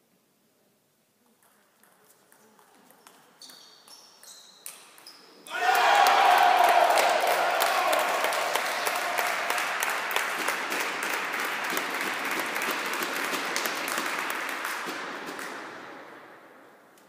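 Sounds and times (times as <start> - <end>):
spectators applauding: 5.5 - 15.7.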